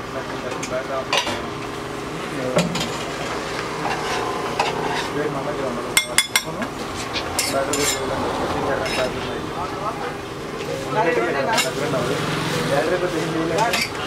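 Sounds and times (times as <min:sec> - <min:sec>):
dosa sizzling on a griddle: 0:00.4 - 0:14.0
spatula scraping a metal griddle: 0:03.8 - 0:05.3.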